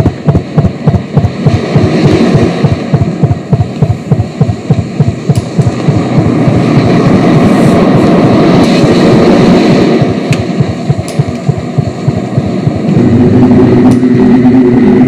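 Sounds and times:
experimental electronic music: 0.0s - 6.6s, 10.0s - 15.0s.

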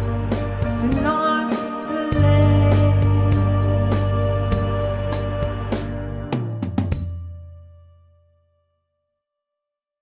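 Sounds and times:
steady drum beat: 0.0s - 7.4s
sustained chords: 1.7s - 8.6s
deep bass note: 2.2s - 8.4s.

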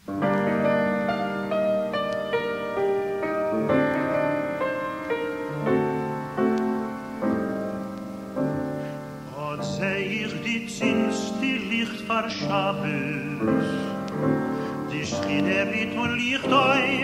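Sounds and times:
slow piano chords: 0.0s - 17.0s
man singing with wide vibrato: 9.2s - 17.0s.

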